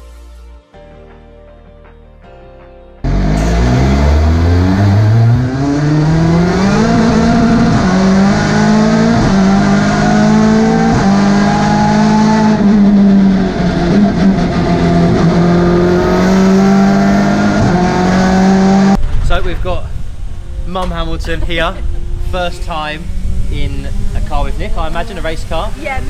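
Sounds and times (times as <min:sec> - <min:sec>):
car engine accelerating hard: 0:03.0 - 0:19.0, 0:21.9 - 0:25.7.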